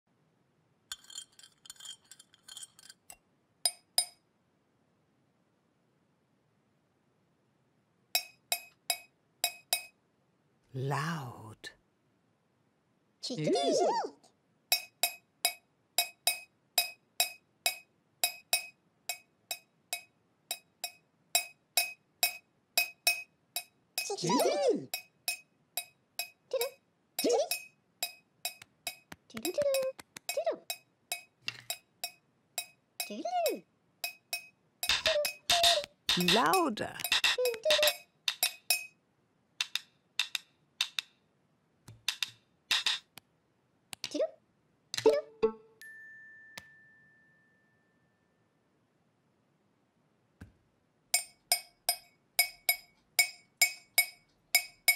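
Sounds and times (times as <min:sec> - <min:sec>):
wooden utensils clacking: 0:00.9 - 0:03.2, 0:34.8 - 0:38.6
teaspoon clinking against mug: 0:00.9 - 0:04.2, 0:34.1 - 0:38.9.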